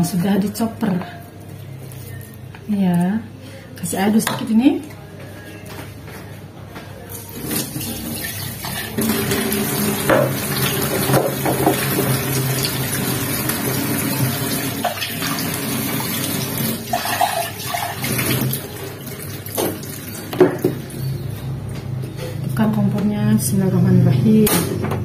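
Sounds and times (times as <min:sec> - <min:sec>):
tap water running into sink: 0:07.4 - 0:20.8.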